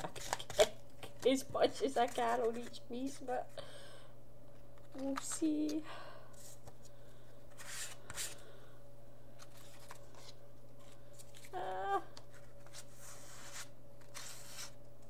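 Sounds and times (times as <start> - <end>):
paper cards rustling and scraping: 0.0 - 3.6, 4.8 - 8.4, 9.4 - 11.5, 12.1 - 14.8
person humming: 11.4 - 12.2.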